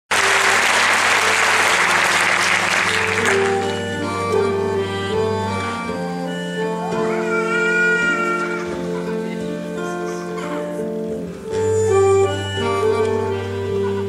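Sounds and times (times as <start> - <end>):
audience applause: 0.1 - 3.9
instrumental music: 0.1 - 14.0.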